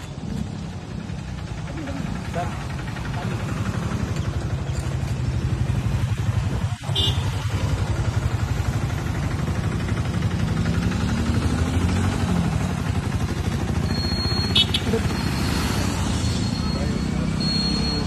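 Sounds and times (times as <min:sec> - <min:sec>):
vehicle engine running: 0:00.0 - 0:18.0.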